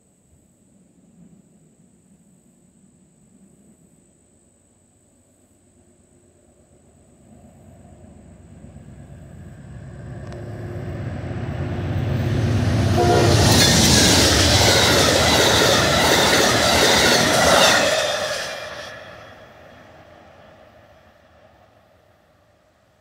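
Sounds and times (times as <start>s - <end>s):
deep locomotive engine drone: 6.1s - 23.0s
rush of wheels on rail: 7.3s - 23.0s.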